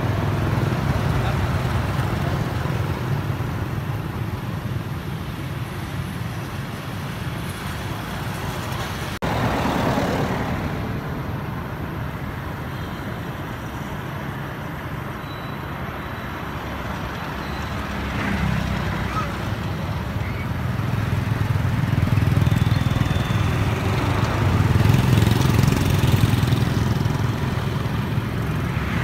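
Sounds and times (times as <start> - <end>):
cars passing: 0.0 - 29.0
motorbikes passing: 0.0 - 29.0.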